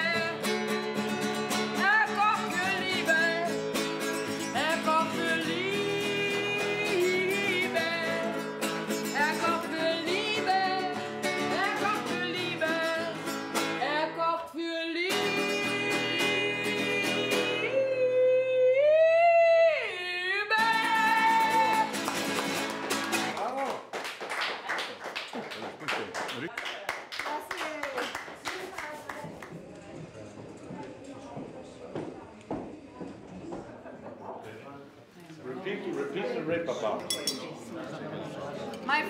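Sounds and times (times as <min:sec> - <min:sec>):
woman singing: 0:00.0 - 0:00.6, 0:01.7 - 0:03.6, 0:04.5 - 0:22.1
classical guitar playing: 0:00.0 - 0:14.2, 0:15.0 - 0:17.7, 0:20.6 - 0:23.4.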